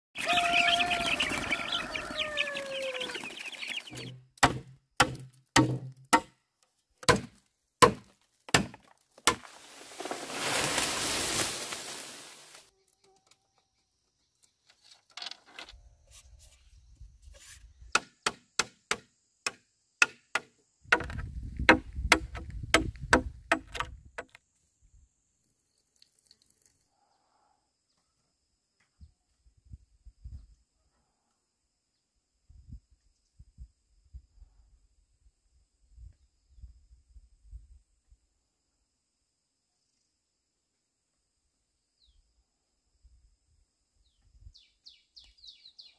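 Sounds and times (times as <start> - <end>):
rooster crowing: 0.2 - 3.9
sharp knocks: 4.0 - 6.3.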